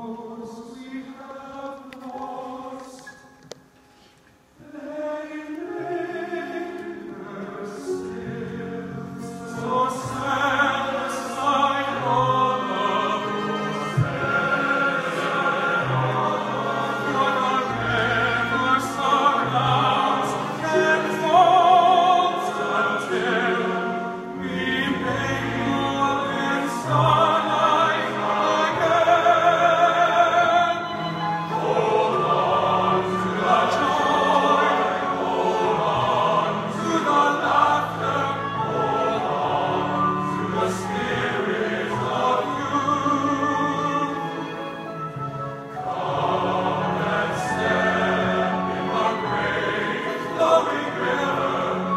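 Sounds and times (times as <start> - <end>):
men's choir sustained low notes: 4.6 - 51.9.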